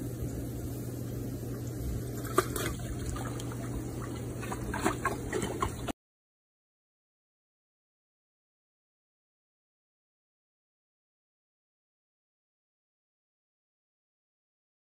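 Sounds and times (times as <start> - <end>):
hot tub jets churning water: 0.0 - 6.0
low pump hum: 0.0 - 6.0
water splashing: 1.4 - 5.9.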